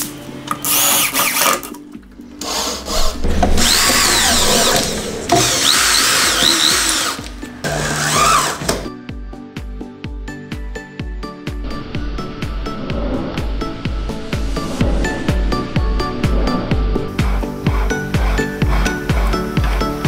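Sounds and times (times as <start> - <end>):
music with steady beat: 2.1 - 20.0
cordless drill into sheet metal: 2.4 - 8.9, 17.2 - 20.0.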